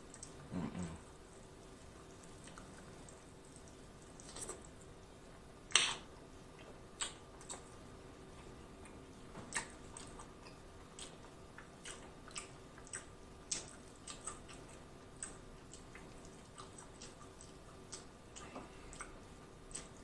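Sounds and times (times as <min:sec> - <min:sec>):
faint steady hum: 0:00.0 - 0:20.0
chewing and biting meat: 0:08.8 - 0:20.0.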